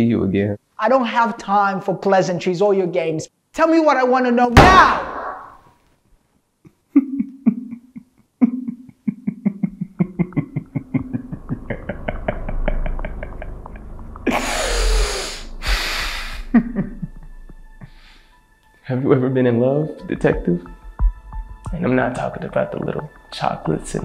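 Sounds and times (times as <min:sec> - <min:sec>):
man laughing: 0:06.9 - 0:15.0, 0:16.1 - 0:18.0
loud rushing breaths: 0:14.3 - 0:16.5.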